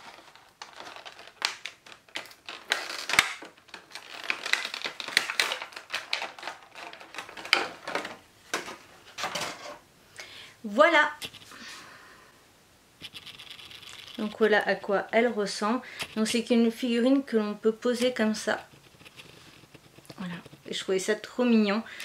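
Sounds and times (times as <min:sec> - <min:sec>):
packaging rustling and crinkling: 0:00.0 - 0:09.6, 0:13.0 - 0:16.9, 0:17.8 - 0:21.0.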